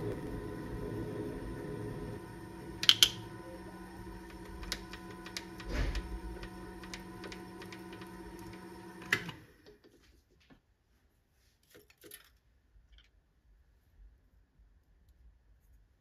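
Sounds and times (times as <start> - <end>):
lathe motor humming: 0.0 - 9.8.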